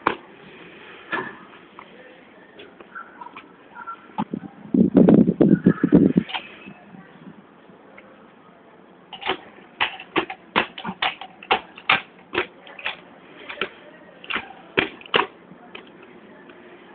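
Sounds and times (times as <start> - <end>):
grips clacking on ground: 9.1 - 16.1.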